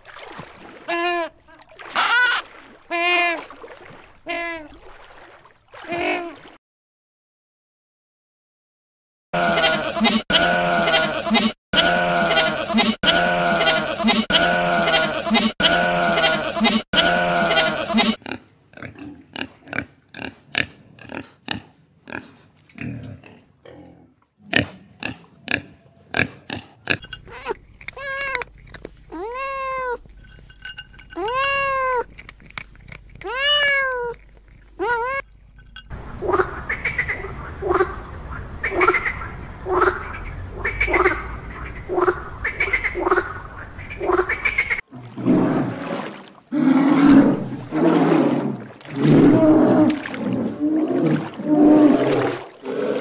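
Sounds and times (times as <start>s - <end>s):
animal calls: 0.9s - 3.4s, 36.1s - 44.8s.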